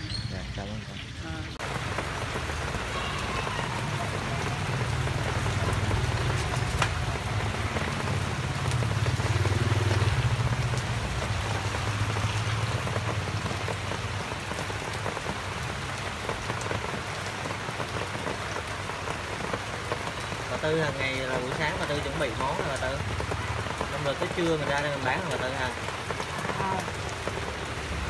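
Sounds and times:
rain on the street: 0.0s - 28.0s
motorbike engine hum: 1.6s - 16.2s.

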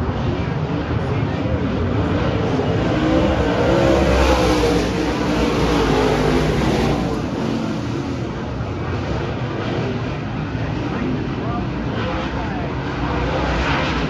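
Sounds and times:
stock car engines passing: 0.0s - 14.0s.

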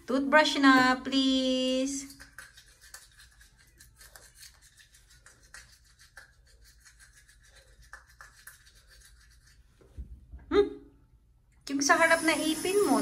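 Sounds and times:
toothbrush scrubbing teeth: 1.7s - 9.9s.

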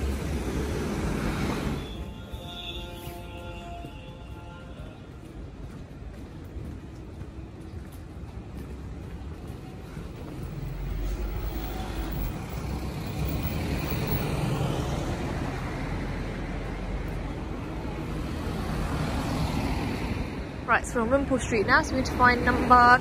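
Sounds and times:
city traffic hum: 0.0s - 23.0s
vehicle passing: 8.6s - 20.6s.

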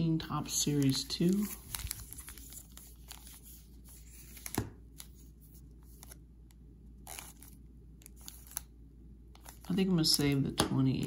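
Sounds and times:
foil card packs rustling: 0.4s - 5.3s, 7.1s - 8.7s, 9.4s - 10.3s.

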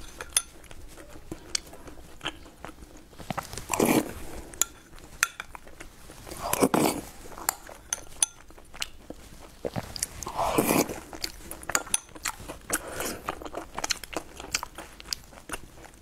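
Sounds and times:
spoon clinking against glass bowl: 0.0s - 0.6s, 7.5s - 8.5s, 11.7s - 12.2s
person chewing and biting: 5.6s - 16.0s.

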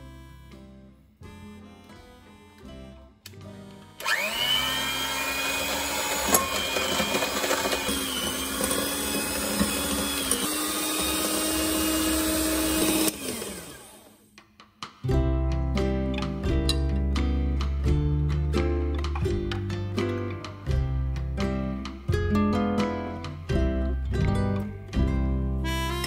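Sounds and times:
electric hand mixer whine: 4.0s - 14.3s.

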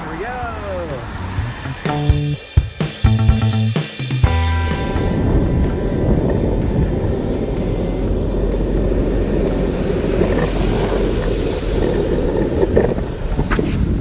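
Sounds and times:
skateboard wheels rolling on concrete: 0.0s - 14.0s
skateboard clacks: 5.6s - 14.0s.

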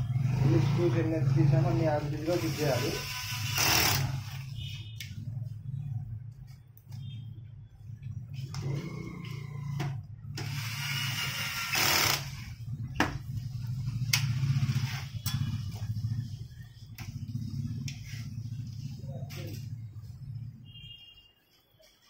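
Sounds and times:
cordless screwdriver whirring: 2.4s - 4.3s, 10.4s - 12.4s
steady low hum: 4.2s - 21.0s.

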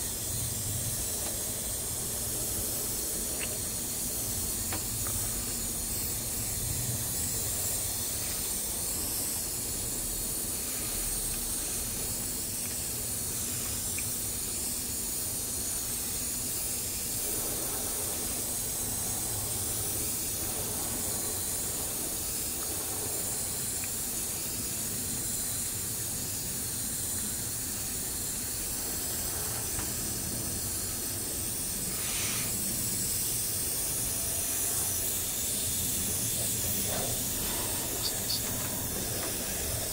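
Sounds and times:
airbrush hiss: 0.0s - 39.9s.

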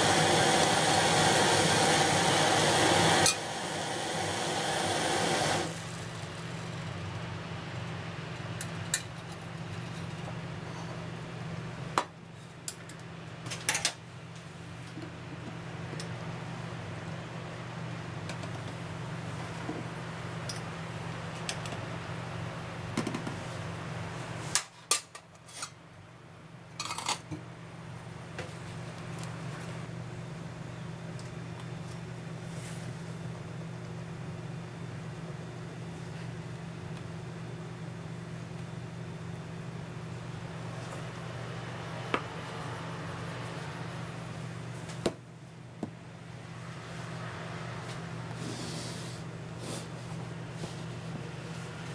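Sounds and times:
gas stove flame hissing: 0.0s - 6.7s, 48.3s - 51.6s
steady hiss and hum: 0.0s - 51.9s.

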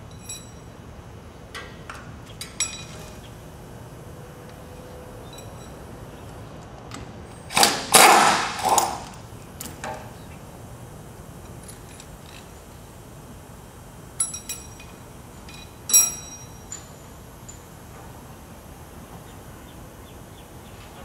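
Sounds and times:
ringing metal clinks: 0.1s - 0.8s, 2.4s - 3.2s, 5.2s - 6.0s, 14.2s - 17.8s
steel tools clattering and scraping: 2.4s - 3.3s, 4.8s - 6.0s.

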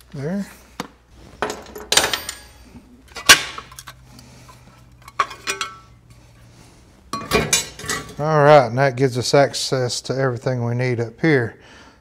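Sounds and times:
wrench clinking on metal: 5.0s - 5.9s.

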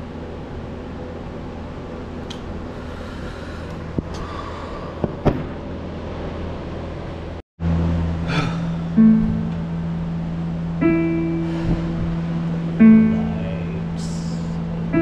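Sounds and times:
low hum: 0.0s - 15.0s
held low tone: 7.6s - 15.0s.

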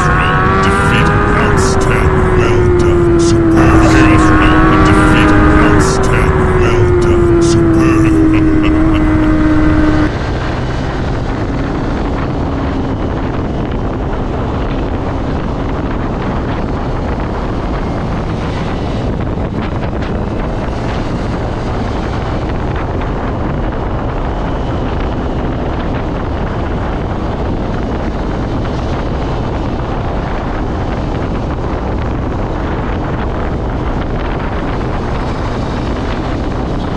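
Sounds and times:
motorcycle engine: 0.0s - 10.1s.

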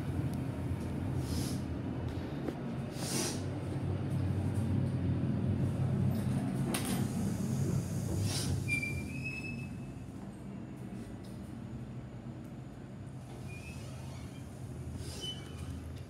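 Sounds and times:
elevator rumbling hum: 0.0s - 16.0s
high squeal: 8.6s - 10.0s, 13.4s - 15.7s.

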